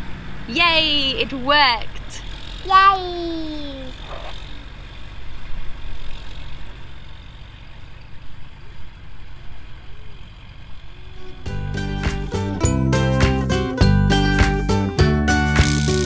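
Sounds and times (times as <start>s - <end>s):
tractor diesel engine running: 0.0s - 16.0s
child cheering: 2.6s - 3.9s.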